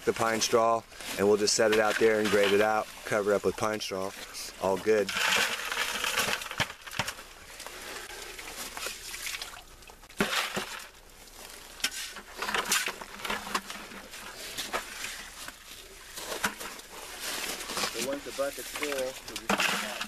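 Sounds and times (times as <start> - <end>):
shovels scraping gravelly soil: 0.0 - 9.2, 10.2 - 20.0
dirt pouring into plastic buckets: 0.0 - 20.0.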